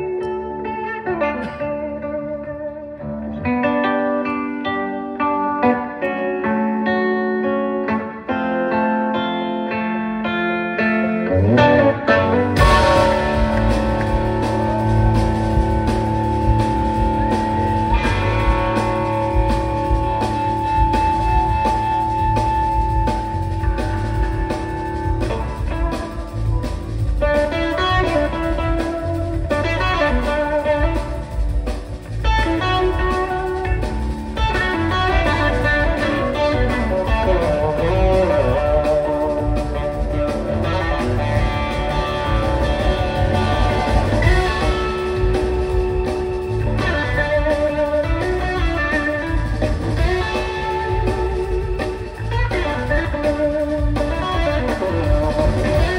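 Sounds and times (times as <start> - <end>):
blues-rock band playing: 0.0 - 55.9
electric guitar lead: 0.0 - 55.9.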